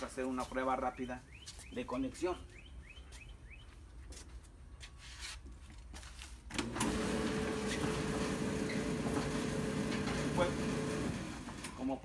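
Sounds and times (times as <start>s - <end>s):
electric dryer humming: 6.5s - 11.7s.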